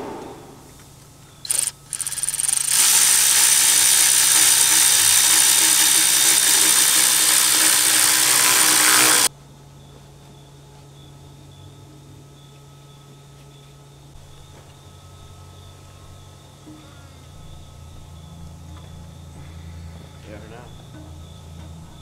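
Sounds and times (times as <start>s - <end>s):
cordless electric ratchet running: 1.4s - 9.3s.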